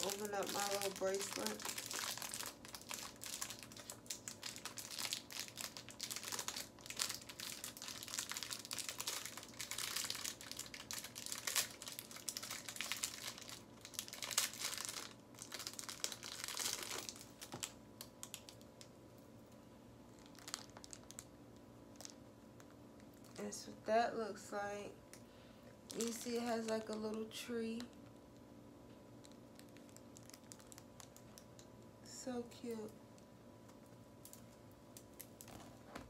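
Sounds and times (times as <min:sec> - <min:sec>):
plastic packet crinkling: 0:00.0 - 0:18.9, 0:20.1 - 0:23.4, 0:25.8 - 0:28.0, 0:29.2 - 0:31.6.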